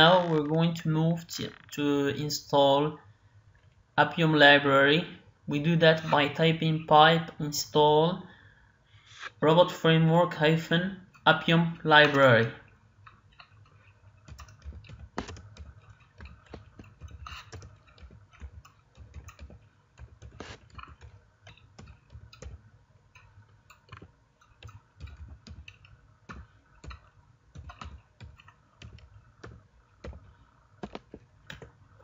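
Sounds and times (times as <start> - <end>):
low steady hum: 0.0 - 32.0
keyboard typing: 13.4 - 31.8.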